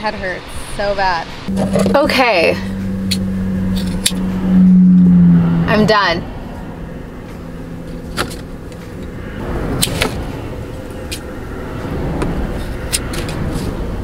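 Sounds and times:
low rumble: 0:01.5 - 0:10.8.

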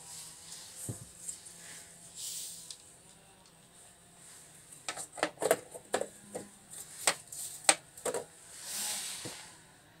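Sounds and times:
plastic cover clicks and knocks: 0:07.1 - 0:08.3.

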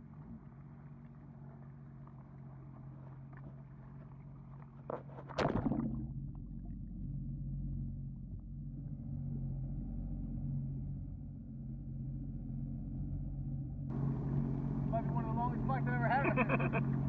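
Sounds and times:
jet ski engine heard underwater: 0:00.0 - 0:17.0
splash into water: 0:05.0 - 0:06.3.

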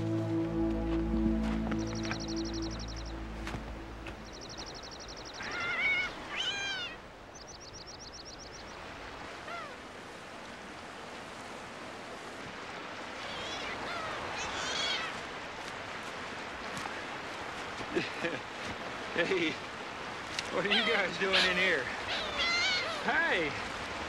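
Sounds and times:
animal mewing calls: 0:05.3 - 0:07.0, 0:13.2 - 0:15.2, 0:20.5 - 0:23.1.

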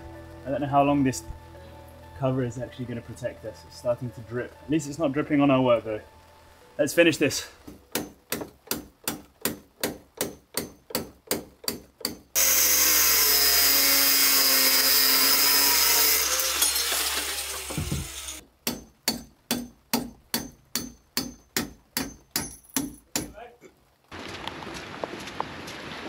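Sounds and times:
angle grinder cutting metal: 0:12.4 - 0:18.4.

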